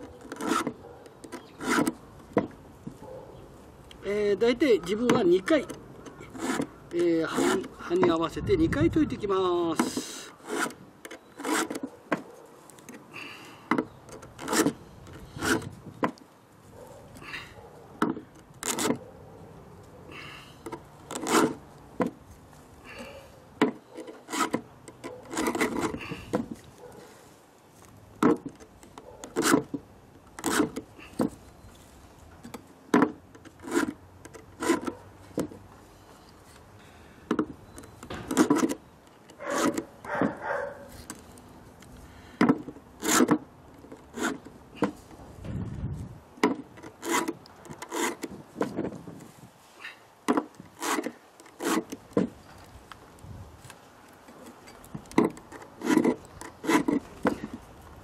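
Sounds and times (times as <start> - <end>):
file rasping on chainsaw chain: 0.3 - 0.8, 1.4 - 2.0, 5.5 - 7.8, 9.9 - 11.8, 14.4 - 15.8, 21.1 - 21.6, 23.9 - 26.2, 30.4 - 30.8, 33.5 - 35.0, 39.4 - 39.9, 43.0 - 43.4, 44.0 - 44.5, 46.8 - 48.3, 50.7 - 52.0, 55.4 - 57.6.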